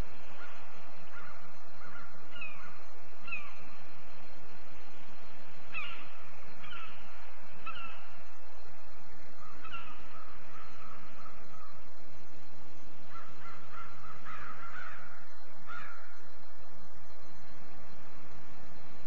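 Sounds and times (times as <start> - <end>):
steady background hiss: 0.0 - 19.0
eagle calls: 5.7 - 8.2, 9.4 - 11.8, 13.0 - 16.2.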